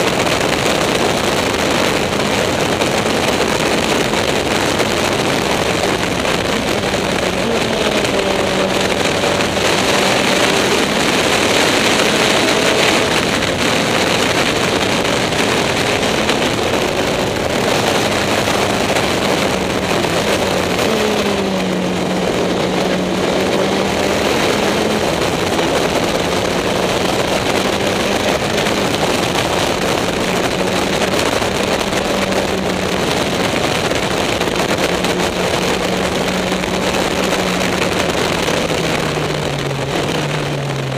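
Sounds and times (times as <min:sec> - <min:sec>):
racing car engine under load: 0:00.0 - 0:40.9.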